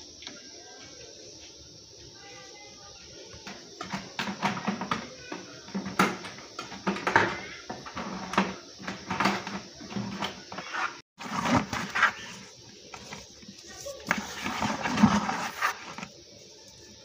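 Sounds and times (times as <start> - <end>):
metal fan blades rattling in bucket: 11.2 - 12.0, 13.8 - 16.1.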